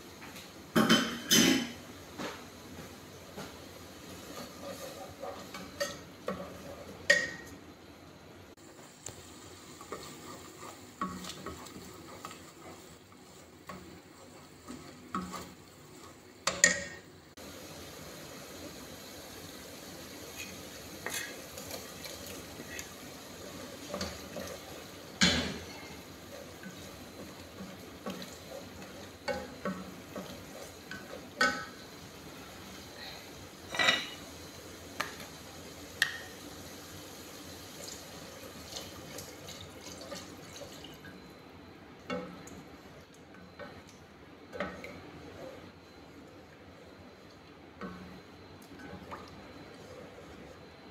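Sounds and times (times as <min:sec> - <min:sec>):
gas stove hiss: 0:00.0 - 0:40.5.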